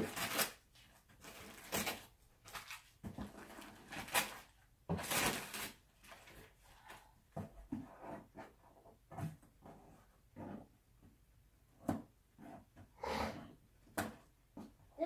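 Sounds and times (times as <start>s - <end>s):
wrapping paper rustling: 0.0s - 6.9s.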